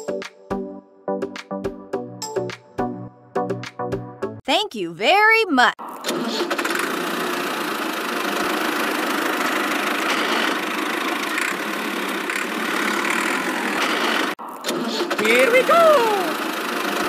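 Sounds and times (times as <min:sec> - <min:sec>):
miniature tractor engine running: 0:06.1 - 0:17.0.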